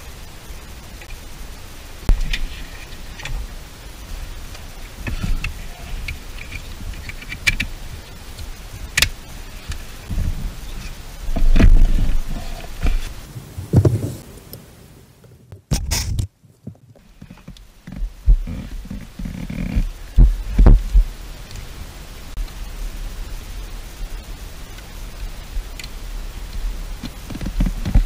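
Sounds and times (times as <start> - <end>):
low thumps: 10.1 - 14.7.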